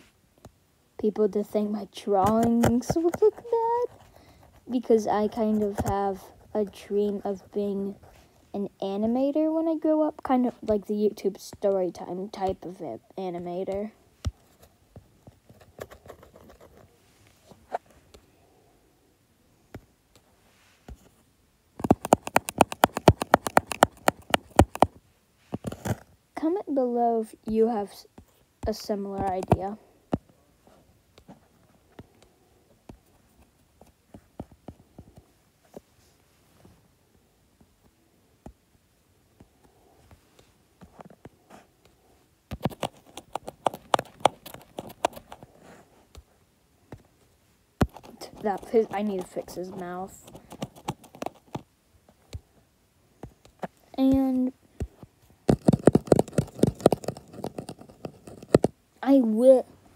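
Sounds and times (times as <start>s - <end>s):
fast ticks of scribbling: 21.8s - 25.0s, 28.7s - 29.8s, 42.5s - 45.5s, 47.8s - 51.6s, 55.5s - 58.7s.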